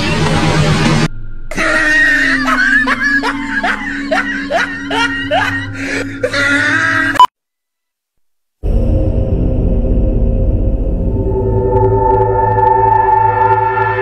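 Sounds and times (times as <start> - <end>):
low drone: 0.0 - 6.3, 8.6 - 14.0.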